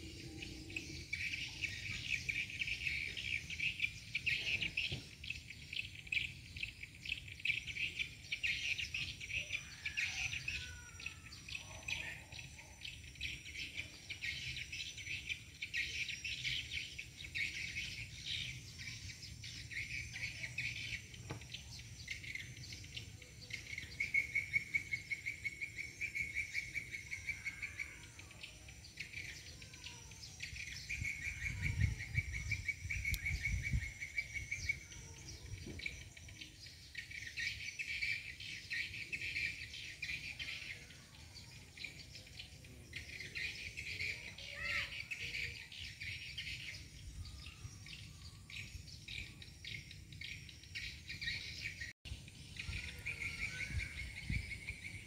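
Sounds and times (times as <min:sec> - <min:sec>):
insects chirring: 0:12.4 - 0:55.0
short bird calls: 0:44.2 - 0:45.6.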